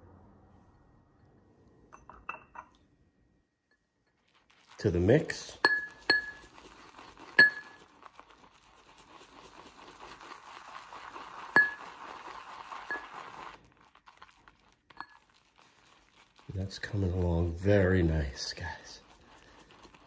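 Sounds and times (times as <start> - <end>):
brush clinking against bowl: 1.9 - 2.8, 3.7 - 13.6, 14.9 - 20.0
brush swishing wet lather: 4.1 - 20.0.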